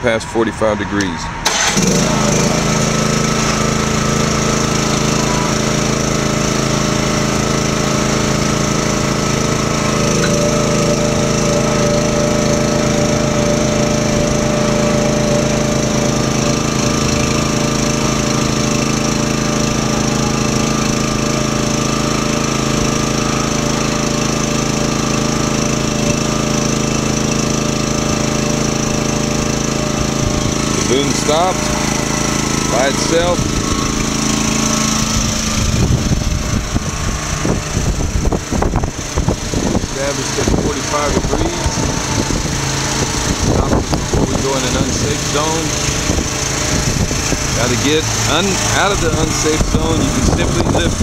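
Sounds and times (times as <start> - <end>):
small engine running under load: 0.0 - 51.0.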